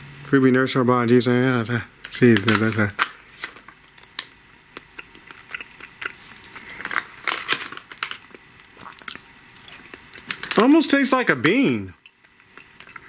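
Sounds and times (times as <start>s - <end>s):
person chewing: 3.8s - 10.6s, 12.0s - 13.0s.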